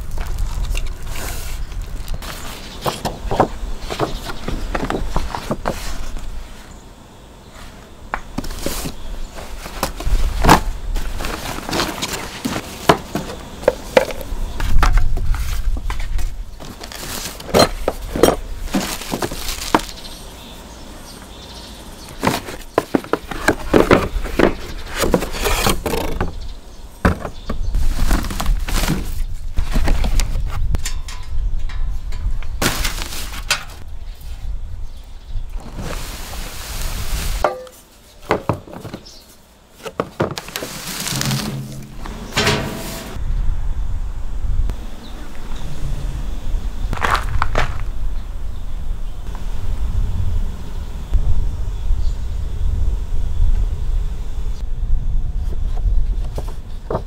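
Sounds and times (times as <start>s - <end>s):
cardboard sliding and scraping: 1.1s - 6.7s, 8.4s - 13.4s, 22.2s - 26.3s, 39.8s - 43.2s
knocks and thumps: 40.0s - 43.2s.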